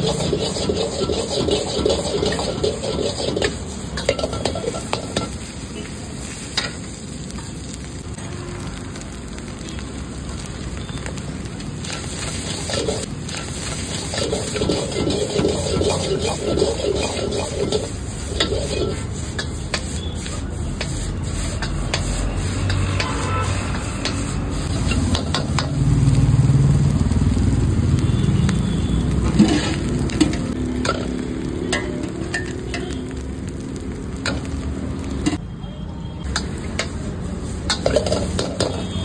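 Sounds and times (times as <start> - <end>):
ladle scraping a wok: 0.0 - 7.0, 11.8 - 25.8, 29.2 - 33.2, 36.3 - 39.0
fried rice sizzling in a wok: 0.0 - 35.4, 36.2 - 39.0
ladle clanking against a wok: 37.6 - 38.9.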